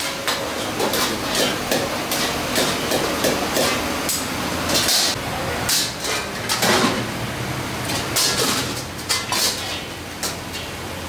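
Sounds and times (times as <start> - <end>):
frying hiss: 0.0 - 6.5
metal ladles clanking on woks: 0.0 - 7.1, 7.8 - 10.8.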